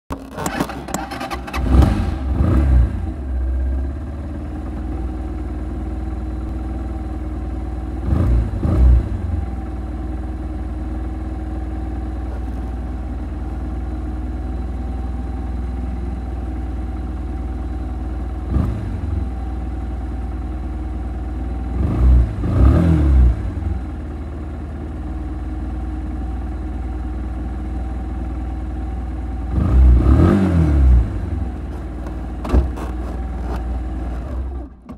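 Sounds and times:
motorcycle engine idling: 1.4s - 22.5s, 23.3s - 34.9s
engine throttle blips: 29.4s - 34.9s.

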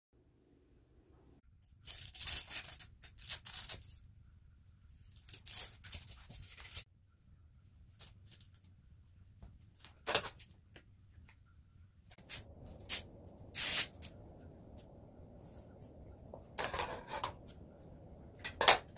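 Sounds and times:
rustling and tearing: 1.8s - 4.0s, 5.0s - 6.8s, 7.9s - 8.7s.

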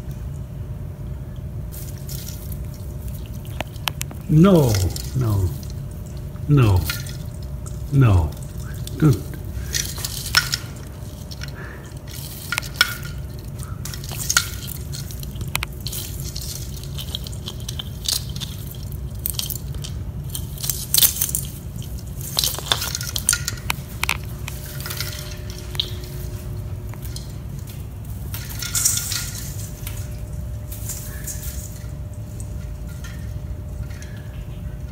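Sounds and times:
steady low hum: 0.0s - 34.9s
tree branches rustling: 1.6s - 34.9s
ornaments clinking: 1.7s - 34.9s.

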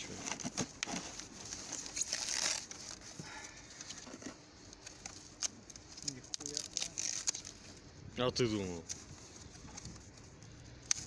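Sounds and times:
packing material crinkling: 0.1s - 3.2s, 4.8s - 7.7s.

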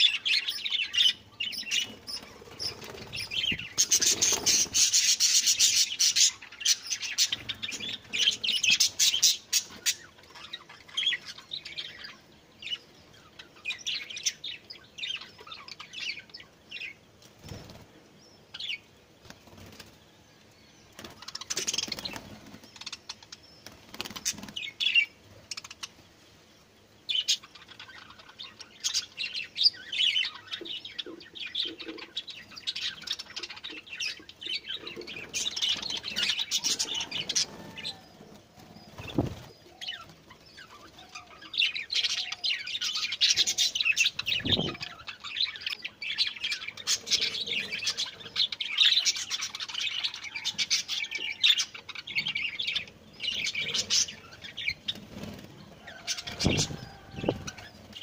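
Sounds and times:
small birds chirping: 0.0s - 58.0s
wings flapping: 1.8s - 5.2s, 17.2s - 17.9s, 19.2s - 20.0s, 20.9s - 23.0s, 23.6s - 24.7s, 35.1s - 40.8s, 54.8s - 58.0s.

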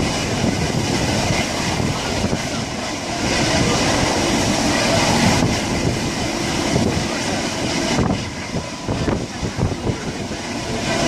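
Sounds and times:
rushing air noise: 0.0s - 11.0s
train wheels rumbling on rail: 0.0s - 11.0s.

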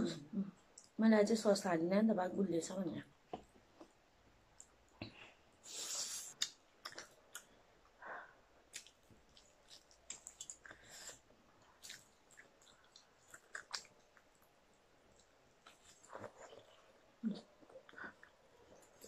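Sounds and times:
wet chewing and biting: 8.7s - 16.7s.

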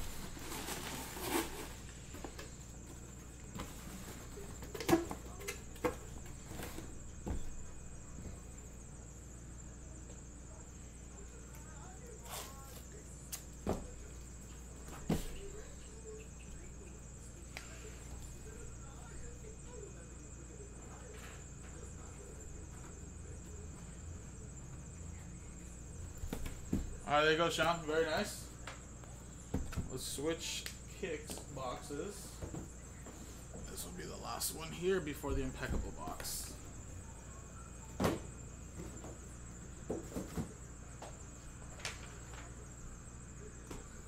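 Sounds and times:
cardboard box rustling: 0.0s - 1.9s.

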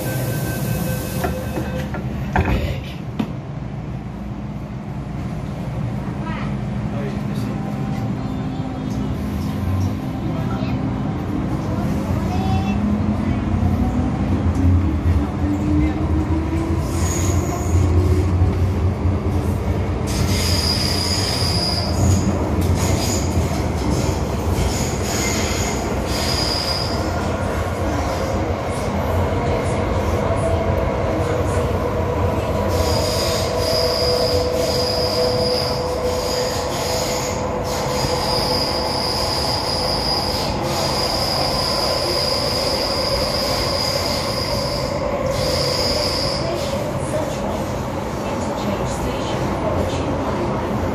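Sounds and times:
train rumble in tunnel: 0.0s - 50.9s
high-pitched wheel squeal: 20.1s - 23.3s, 24.7s - 27.1s, 32.7s - 46.6s.

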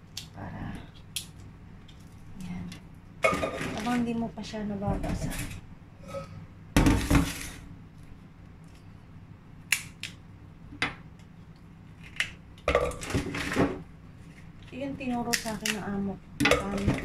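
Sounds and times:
metal bowl clattering on counter: 3.2s - 4.0s
dry mushrooms clicking into bowl: 15.3s - 15.9s.

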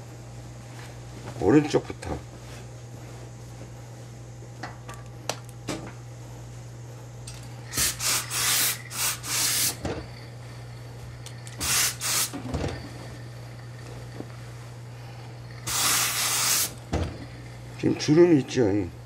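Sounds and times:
steady low hum: 0.0s - 19.0s
steam iron hissing bursts: 7.7s - 9.8s, 11.6s - 12.4s, 15.6s - 16.8s.

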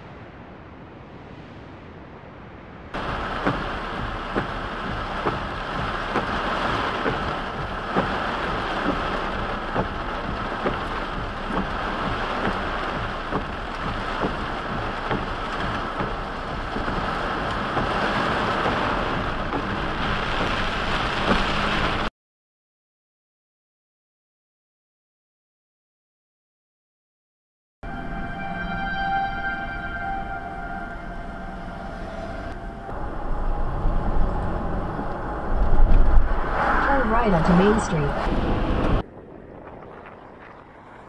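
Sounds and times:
regular tapping: 3.0s - 21.4s
heavy rain on car windshield: 3.0s - 22.1s, 35.4s - 39.0s.

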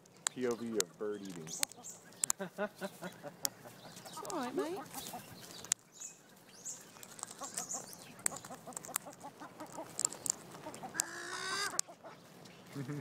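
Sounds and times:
parrot beak clicking on seeds: 0.0s - 2.4s, 7.0s - 11.9s
birds calling softly: 0.0s - 13.0s
high bird chirps: 0.3s - 11.8s.

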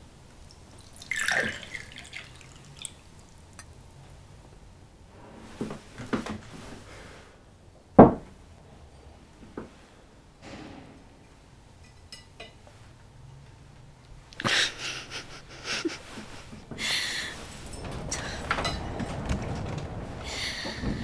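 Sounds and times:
liquid splash or glass clink: 0.8s - 3.0s
loud low thump: 10.4s - 11.3s.

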